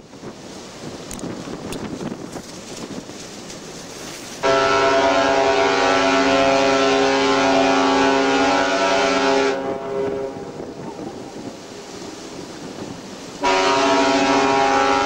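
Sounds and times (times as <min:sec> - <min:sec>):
wind noise on microphone: 0:00.0 - 0:15.0
deep ship horn blast: 0:04.4 - 0:10.8, 0:13.4 - 0:15.0.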